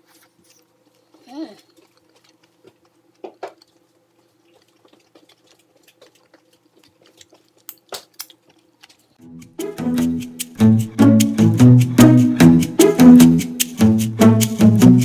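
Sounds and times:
person chewing food: 0:00.0 - 0:09.2
low room hum: 0:00.0 - 0:12.5
plucked and bowed string music: 0:09.2 - 0:15.0.

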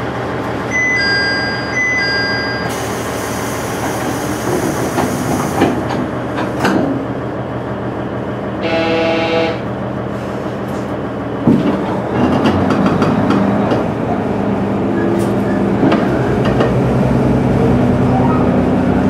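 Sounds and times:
diesel railcar engine and rolling: 0:00.0 - 0:19.0
train horn: 0:08.6 - 0:09.8.

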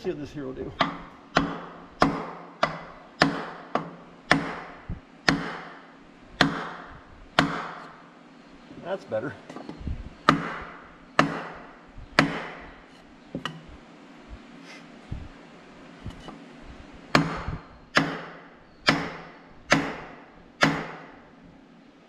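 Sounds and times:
sledgehammer hitting wood: 0:00.8 - 0:08.0, 0:10.3 - 0:12.8, 0:17.1 - 0:21.2.

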